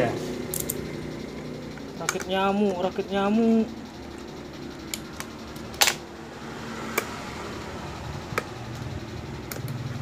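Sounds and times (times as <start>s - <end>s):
low background hum: 0.0s - 10.0s
sharp little clicks and taps: 4.1s - 6.0s, 6.8s - 7.2s, 8.2s - 10.0s.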